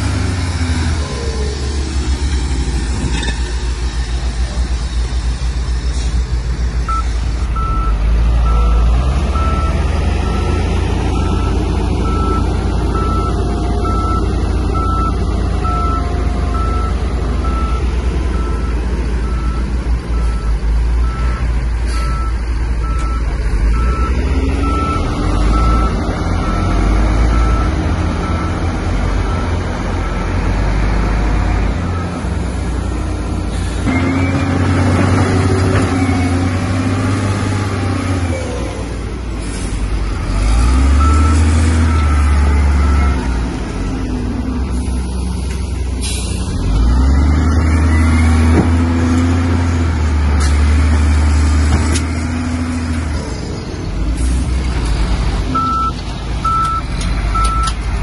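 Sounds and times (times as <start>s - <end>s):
diesel engine running: 0.0s - 58.0s
reversing alarm beeping: 6.9s - 28.6s, 40.9s - 44.0s, 55.5s - 57.8s.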